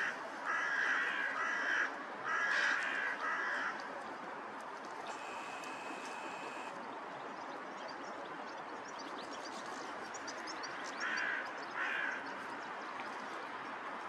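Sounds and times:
crow cawing: 0:00.5 - 0:03.8, 0:11.0 - 0:12.2.

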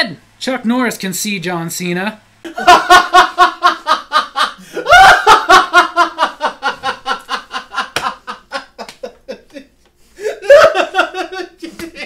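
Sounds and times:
man laughing hard: 0:02.5 - 0:12.0.

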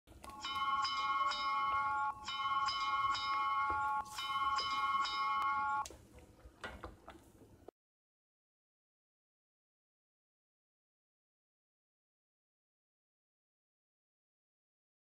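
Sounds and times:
bell-like chime music: 0:00.3 - 0:05.9.

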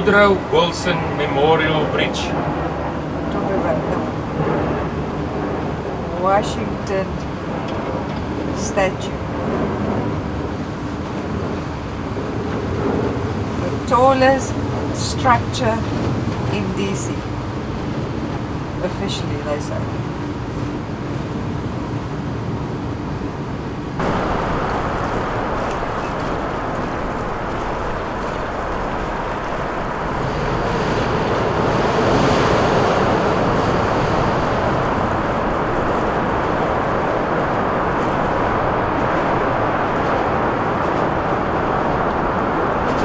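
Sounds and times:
water rushing: 0:00.0 - 0:22.2, 0:22.8 - 0:43.0
rushing wind: 0:00.0 - 0:43.0.

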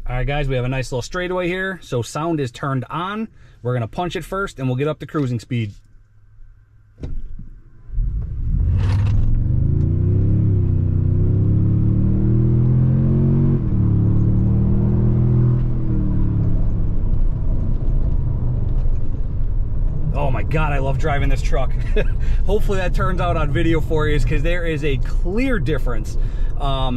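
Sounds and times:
engine accelerating: 0:07.8 - 0:26.9.

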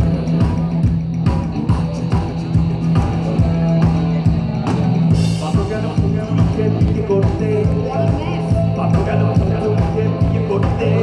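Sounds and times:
drum kit beating: 0:00.0 - 0:11.0
rock band playing live: 0:00.0 - 0:11.0.

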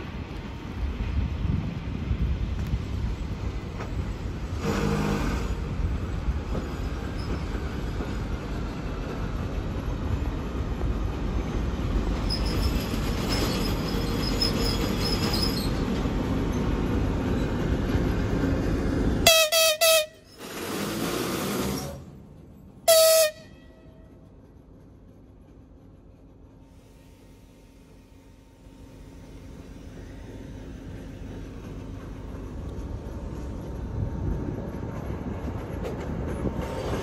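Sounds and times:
locomotive engine rumble: 0:00.0 - 0:37.0
locomotive horn blast: 0:19.2 - 0:20.3, 0:22.8 - 0:24.1.

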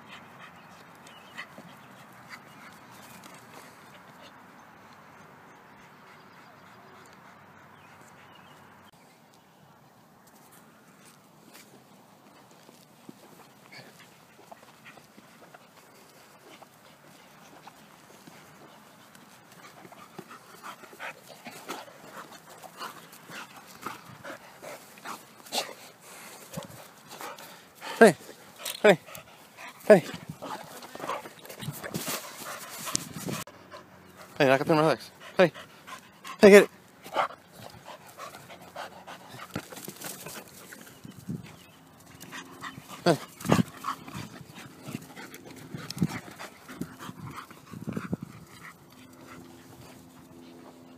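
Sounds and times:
dog panting: 0:12.4 - 0:50.9.

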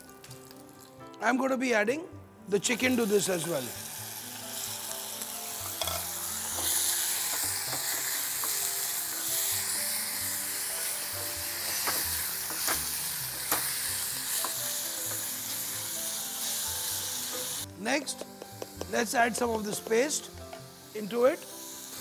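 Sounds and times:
light background music: 0:00.0 - 0:22.0
chicken sizzling in oil: 0:02.6 - 0:17.7, 0:18.4 - 0:22.0
wooden spoon knocking pan: 0:18.1 - 0:20.6.

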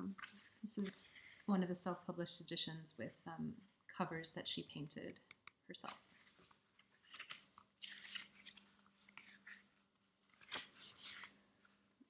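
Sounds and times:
book pages rustling: 0:00.0 - 0:01.7, 0:05.8 - 0:12.0.

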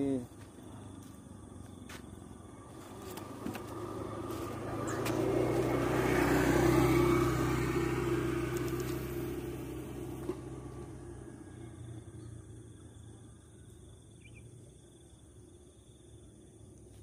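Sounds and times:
motor vehicle passing: 0:02.1 - 0:13.4.

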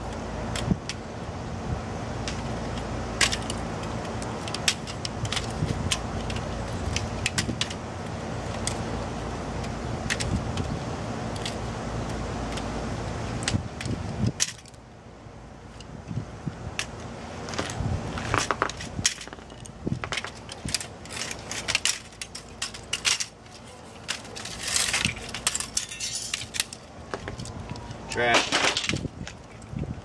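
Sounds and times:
steady rumble: 0:00.0 - 0:30.0
plastic and metal parts clattering: 0:02.3 - 0:07.8, 0:13.4 - 0:14.8, 0:16.8 - 0:29.8.

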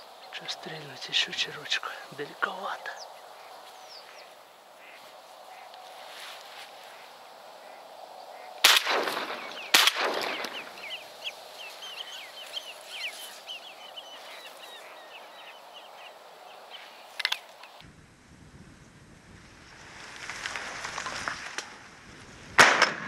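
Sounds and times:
high bird calls: 0:00.0 - 0:17.8
shotgun shots: 0:08.6 - 0:11.0, 0:22.6 - 0:23.0.

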